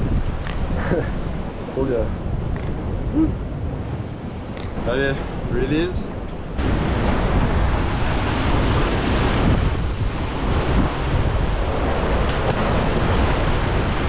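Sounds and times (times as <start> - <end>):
wind buffeting microphone: 0.0 - 14.0
surf breaking over rocks: 4.8 - 14.0.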